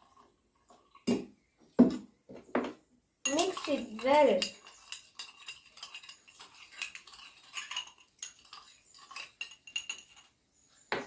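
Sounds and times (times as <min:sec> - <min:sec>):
spoon clinking against glass: 0:03.2 - 0:10.3.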